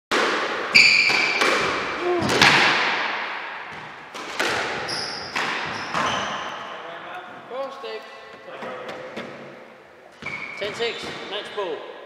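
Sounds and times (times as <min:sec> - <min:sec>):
squash ball knocks echoing: 0:00.1 - 0:06.7.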